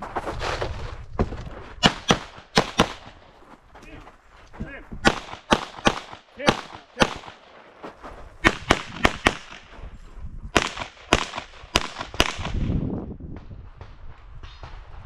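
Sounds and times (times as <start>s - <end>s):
pistol shots: 1.8s - 3.2s, 5.0s - 7.6s, 8.4s - 9.7s, 10.5s - 12.8s.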